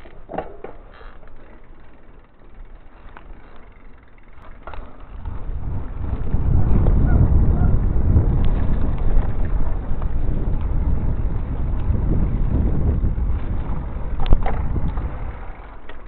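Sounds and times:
bike tyres rolling on asphalt: 0.0s - 16.0s
wind on microphone: 5.0s - 15.8s.

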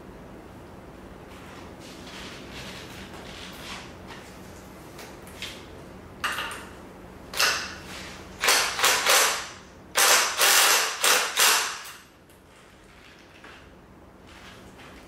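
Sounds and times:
impact wrench bursts: 8.4s - 12.0s.

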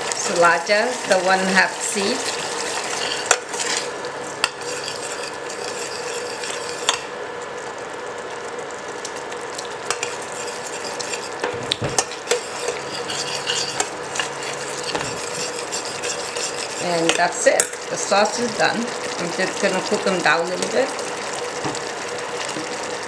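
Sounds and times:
sauce sizzling: 0.0s - 23.0s
metal spoon stirring sauce: 0.2s - 7.0s, 9.9s - 11.4s, 12.0s - 17.9s.

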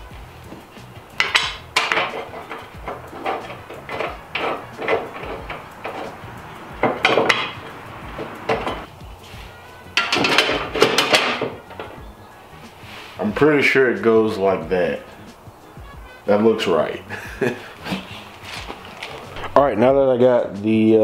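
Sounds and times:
metal brackets clinking and clanking: 0.5s - 8.9s, 9.8s - 12.1s.

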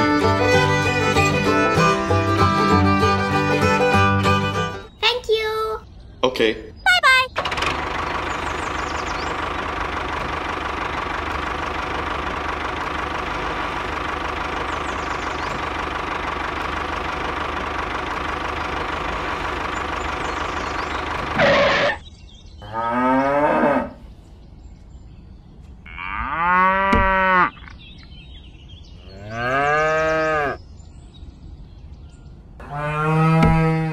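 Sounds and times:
engine running: 0.0s - 4.9s, 7.4s - 22.0s
cow mooing: 22.6s - 24.0s, 25.9s - 27.6s, 29.1s - 30.6s, 32.6s - 33.9s.

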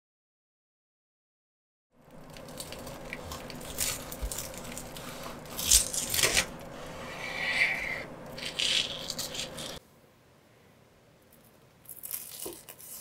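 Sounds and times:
knife sawing through crispy crust: 2.5s - 9.8s.

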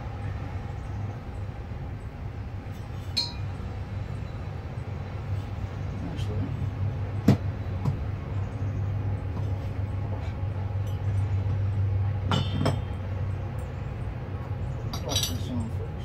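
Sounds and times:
steady low hum: 0.0s - 16.0s
light metal clinks: 2.8s - 3.6s, 14.8s - 15.8s.

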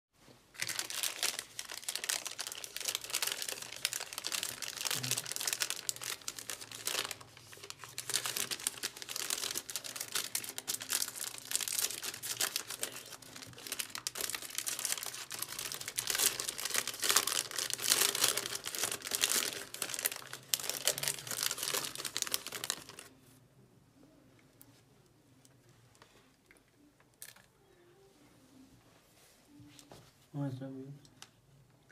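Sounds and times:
plastic wrapper crinkling: 0.5s - 23.1s, 25.9s - 27.5s.

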